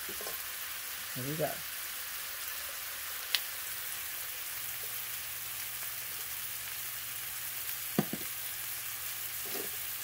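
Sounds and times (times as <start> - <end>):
chicken sizzling in skillet: 0.0 - 10.0.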